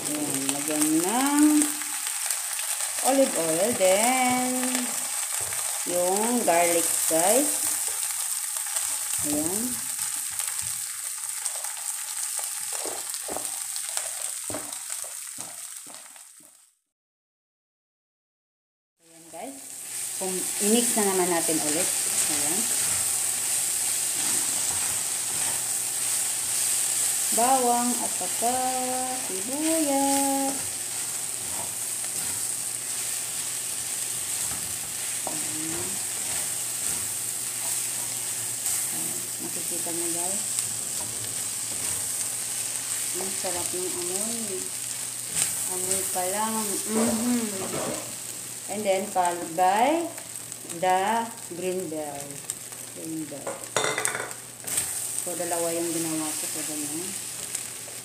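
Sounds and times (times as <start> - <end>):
meat sizzling in oil: 0.0 - 16.7, 19.3 - 58.0
spatula stirring and tapping pan: 12.4 - 16.6, 20.8 - 27.6, 29.5 - 38.9.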